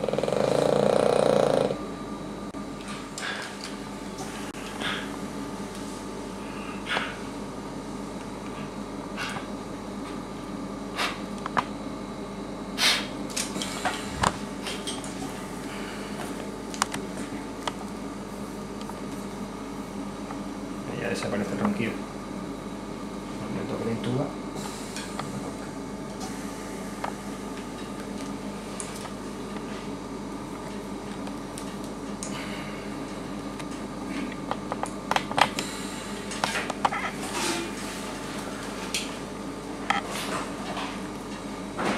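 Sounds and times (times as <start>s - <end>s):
dog snoring breaths: 0.0s - 1.8s
steady background hum: 0.0s - 41.9s.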